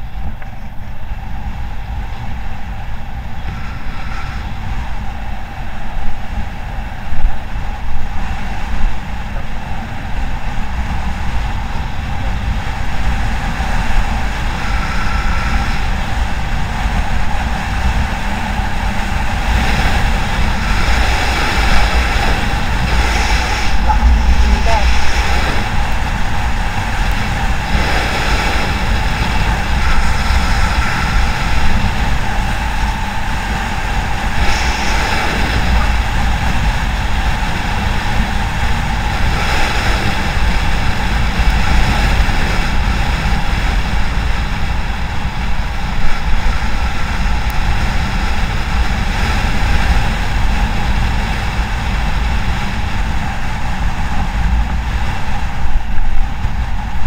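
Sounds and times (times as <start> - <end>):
motorcycle engine drone: 0.0 - 57.0
road noise: 0.0 - 57.0
wind buffeting microphone: 0.0 - 57.0.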